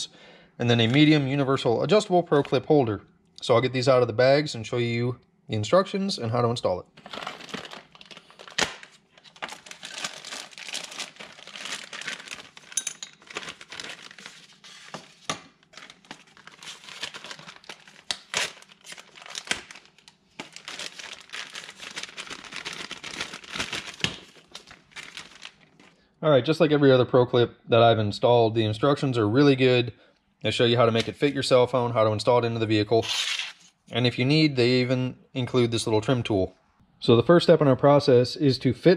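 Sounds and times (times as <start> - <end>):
plastic bags crinkling: 7.0 - 26.0.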